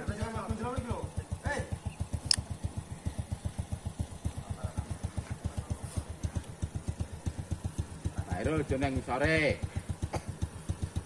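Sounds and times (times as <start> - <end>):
small engine idling: 0.0 - 11.0
sharp click: 2.2 - 2.5.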